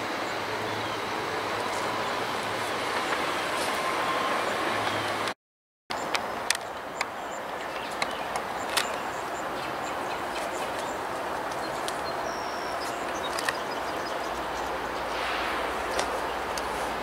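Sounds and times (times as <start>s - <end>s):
steady hiss: 12.6s - 17.0s.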